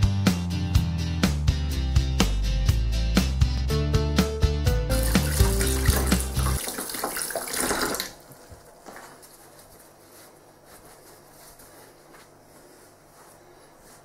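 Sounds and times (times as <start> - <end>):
cloth towel rustling: 5.2 - 14.0.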